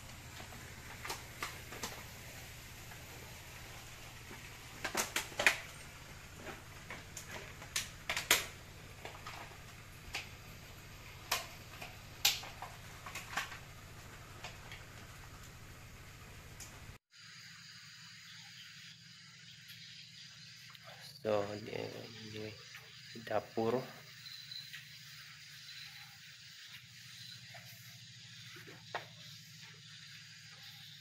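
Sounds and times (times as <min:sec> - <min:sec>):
sharp clicks and light knocks: 0:06.4 - 0:09.5.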